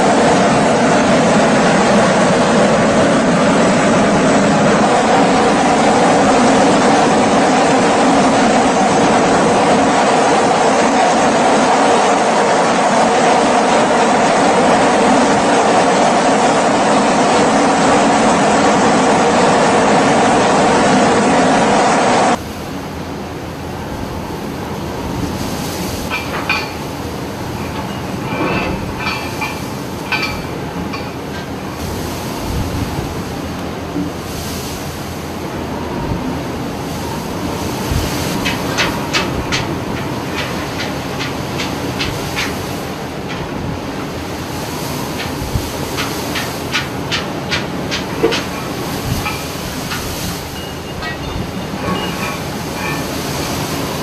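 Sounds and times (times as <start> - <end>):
heavy sea: 0.0 - 54.0
storm wind roaring: 0.0 - 54.0.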